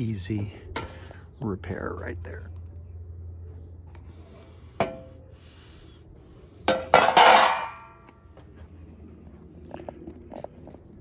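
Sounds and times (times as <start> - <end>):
loud ringing clatter of metal: 6.7 - 8.0.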